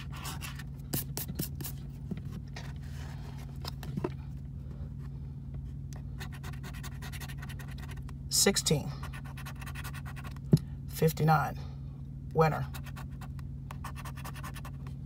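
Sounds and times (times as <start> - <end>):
steady low hum: 0.0 - 15.0
coin scratching lottery ticket: 6.2 - 8.0, 9.1 - 10.3, 12.7 - 14.7.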